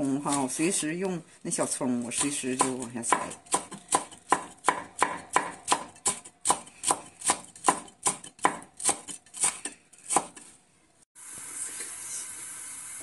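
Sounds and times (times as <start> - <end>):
knife chopping on cutting board: 2.2 - 10.5.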